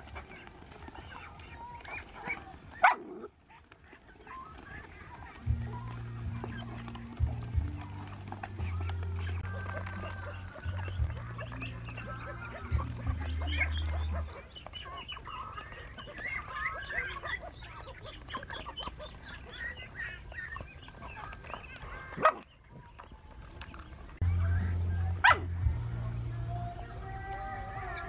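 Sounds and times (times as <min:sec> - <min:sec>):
loud sharp cries: 0:26.5 - 0:28.0.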